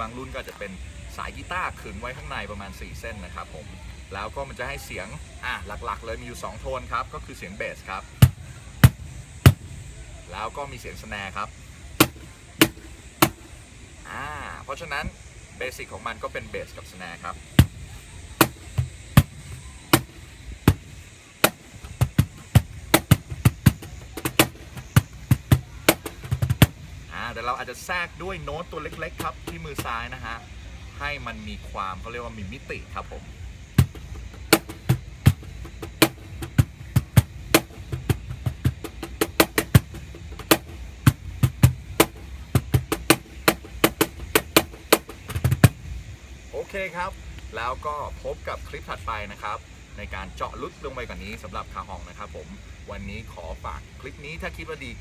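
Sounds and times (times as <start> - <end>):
cajon groove played by hand: 8.2 - 9.8, 12.0 - 13.6, 17.5 - 27.1, 28.6 - 30.0, 33.7 - 46.0.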